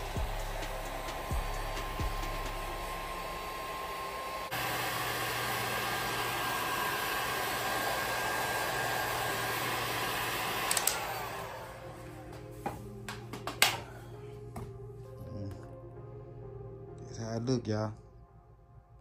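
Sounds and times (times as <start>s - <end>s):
heat gun blowing: 0.0s - 12.1s
heat gun clicks: 10.6s - 11.2s.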